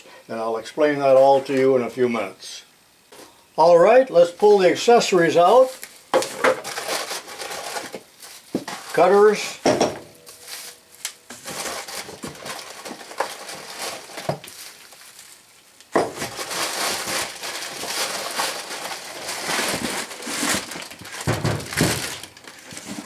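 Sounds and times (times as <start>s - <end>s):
plastic wrap crinkling: 4.6s - 9.6s, 10.2s - 23.0s
cardboard rustling: 5.6s - 9.5s, 10.2s - 23.0s.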